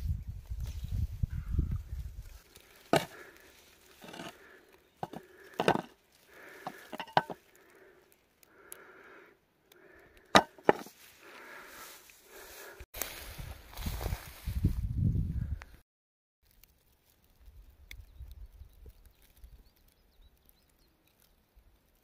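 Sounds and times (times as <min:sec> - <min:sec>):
dry grass rustling: 0:00.1 - 0:08.4, 0:10.3 - 0:15.0
spade chopping into ground: 0:02.9 - 0:03.2, 0:04.0 - 0:04.3, 0:05.0 - 0:05.9, 0:10.4 - 0:10.9.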